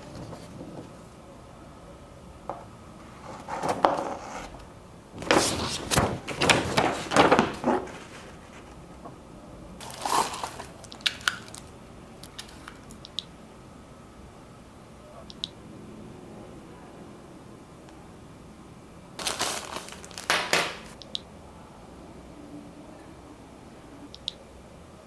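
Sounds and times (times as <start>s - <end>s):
paper rustling and crinkling: 5.2s - 8.8s, 9.8s - 12.8s, 19.2s - 21.0s.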